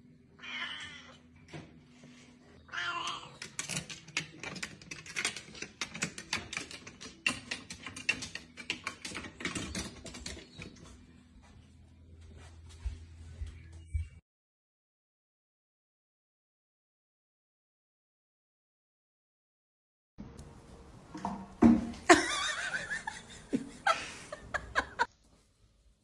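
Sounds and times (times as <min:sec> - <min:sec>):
cat meowing: 0:00.4 - 0:01.2, 0:02.7 - 0:03.4
claws clicking on wooden rungs: 0:03.0 - 0:11.0.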